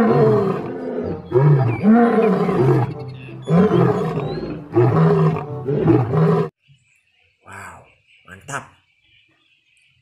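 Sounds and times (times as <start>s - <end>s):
lion roaring: 0.0s - 6.5s.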